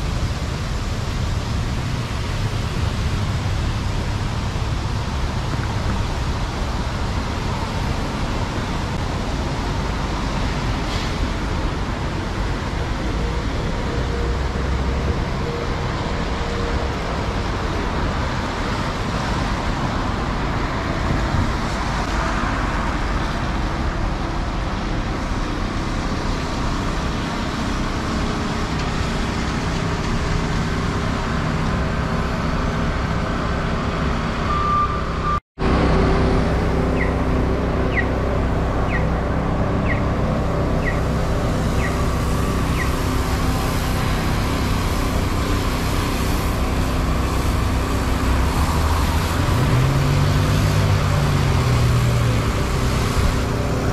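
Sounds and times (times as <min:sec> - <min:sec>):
city traffic on wet streets: 0:00.0 - 0:53.9.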